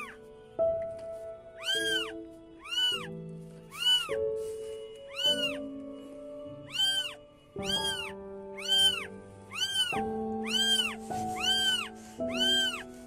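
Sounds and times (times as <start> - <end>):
background music of sustained chords: 0.0 - 13.0
kittens mewing: 1.6 - 3.1, 3.7 - 4.2, 5.1 - 5.7, 6.6 - 13.0.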